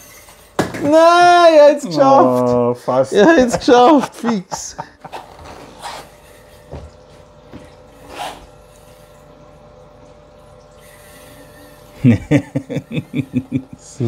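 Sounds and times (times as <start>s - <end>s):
faint steady hum: 0.0s - 14.0s
person laughing: 3.1s - 5.4s, 12.0s - 14.0s.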